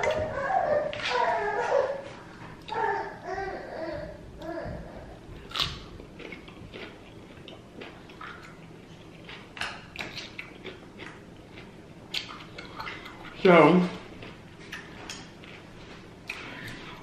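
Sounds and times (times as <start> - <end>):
biting and chewing food: 5.4 - 13.4.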